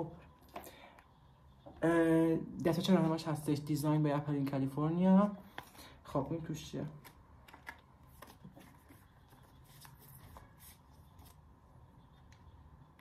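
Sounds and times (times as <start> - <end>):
paper envelope rustling: 7.0 - 11.5.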